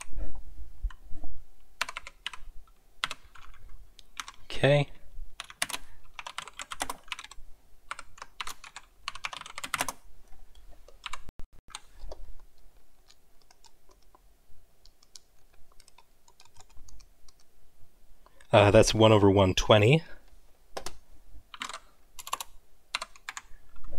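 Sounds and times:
computer keyboard typing: 1.8s - 2.4s, 3.0s - 3.6s, 4.2s - 4.4s, 5.4s - 10.0s, 10.9s - 12.4s, 13.0s - 14.2s, 14.8s - 17.5s, 20.8s - 23.5s.

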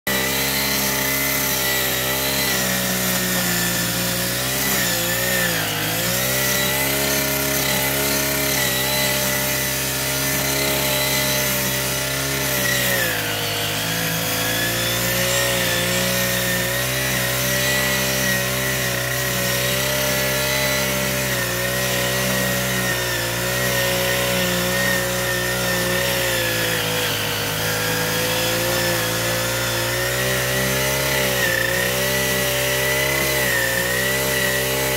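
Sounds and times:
brush cutter engine running: 0.1s - 34.9s.

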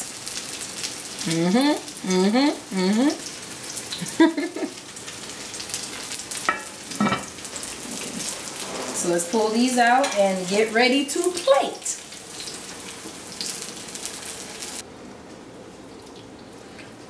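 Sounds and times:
fritters sizzling in hot oil: 0.0s - 14.9s
lid clinking on pot: 6.5s - 7.3s.

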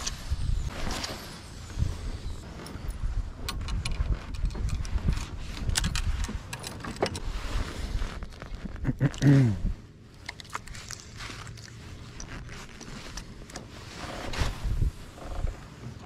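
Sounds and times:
fishing gear clicks and knocks: 2.6s - 7.3s, 10.1s - 13.7s.

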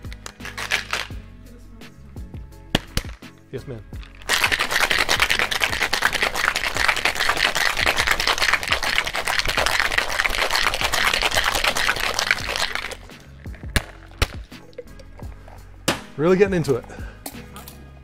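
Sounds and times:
ice rattling in cocktail shaker: 0.3s - 1.2s, 4.0s - 15.6s.

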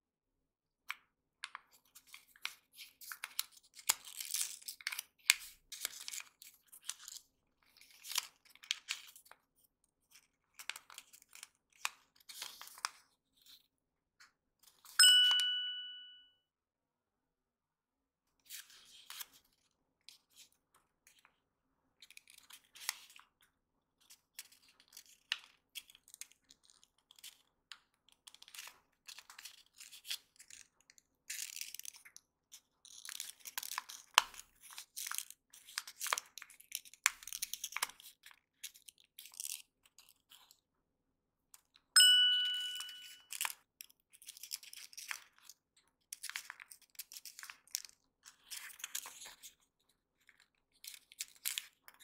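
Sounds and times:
paper crinkling and creasing: 10.1s - 13.7s, 44.2s - 52.0s
bell-like ding: 15.0s - 16.3s, 42.0s - 43.2s.

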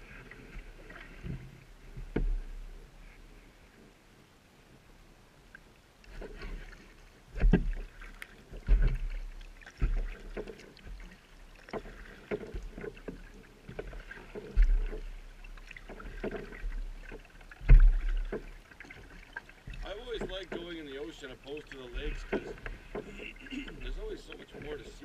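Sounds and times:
paddle strokes splashing and dripping: 0.0s - 3.9s, 5.4s - 25.0s
dull low thump: 1.2s - 2.7s, 7.3s - 7.9s, 8.6s - 20.8s, 21.9s - 24.8s.

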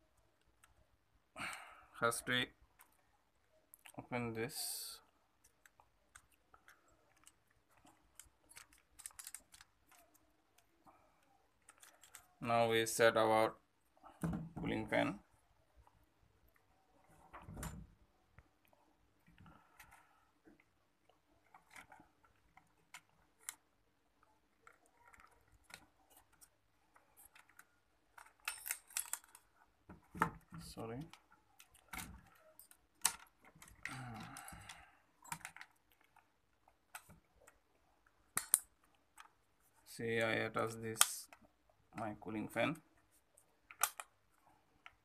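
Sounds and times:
plastic clicks and rattles: 5.4s - 12.4s, 19.2s - 39.4s, 43.6s - 45.0s.

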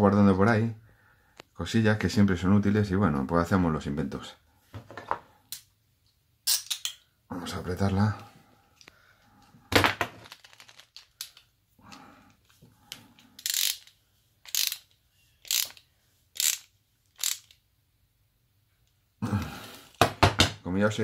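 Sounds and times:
small metal parts clattering: 9.8s - 11.5s
ratchet clicking: 13.4s - 15.8s, 16.4s - 17.6s.

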